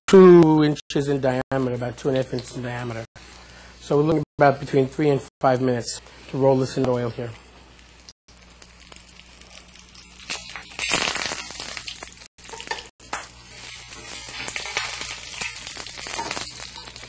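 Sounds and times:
fish sizzling in hot oil: 0:07.6 - 0:17.0.

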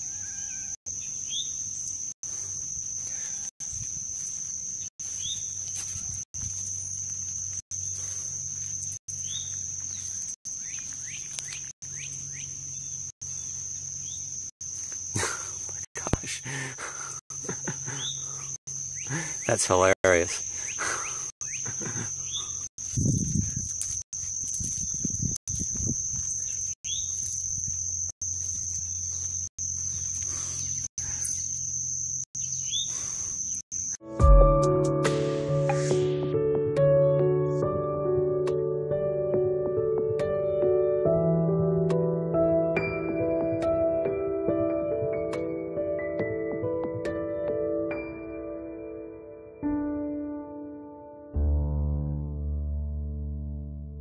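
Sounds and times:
high-pitched insect drone: 0:00.0 - 0:34.1
short bird chirps: 0:29.0 - 0:34.0.

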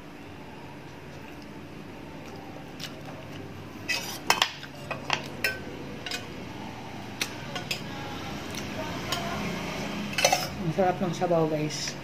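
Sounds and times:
spoon clinking against metal pot: 0:10.1 - 0:10.6.

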